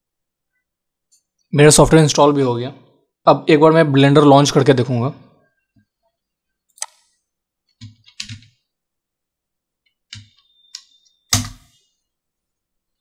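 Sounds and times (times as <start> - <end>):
computer keyboard typing: 7.8 - 8.6, 10.1 - 11.6.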